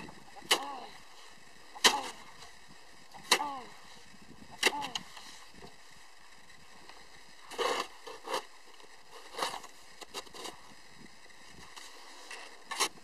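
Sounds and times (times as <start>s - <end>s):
shovel scraping snow: 0.4s - 2.5s, 7.4s - 10.8s, 11.7s - 13.0s
shovel blade striking ice: 1.8s - 2.2s.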